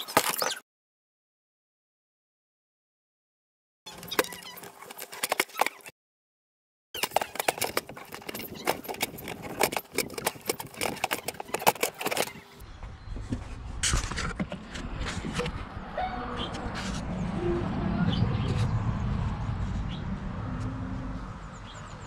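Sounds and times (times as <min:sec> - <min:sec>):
plastic cover clicking and rattling: 0:07.0 - 0:12.5.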